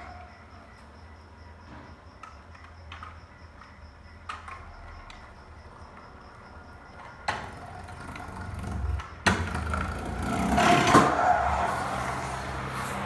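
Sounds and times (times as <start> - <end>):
scooter wheels rolling over concrete: 1.7 - 13.0.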